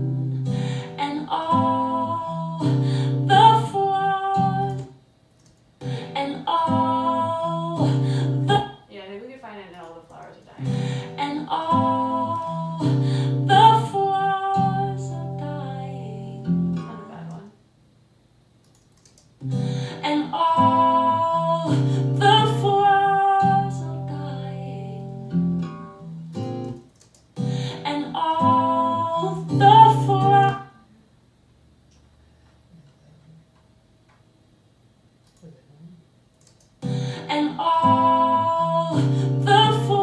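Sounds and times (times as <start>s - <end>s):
acoustic guitar ballad: 0.0s - 5.0s, 5.8s - 8.8s, 10.2s - 17.4s, 19.4s - 30.8s, 36.8s - 40.0s
woman singing: 0.5s - 5.0s, 5.8s - 17.6s, 19.8s - 25.3s, 27.6s - 30.9s, 37.1s - 40.0s.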